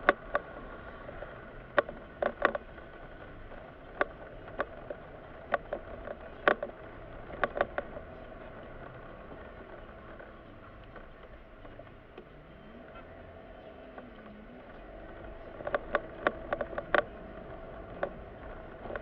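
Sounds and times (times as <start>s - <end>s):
car engine and road hum: 0.0s - 19.0s
sharp clicks: 13.9s - 19.0s.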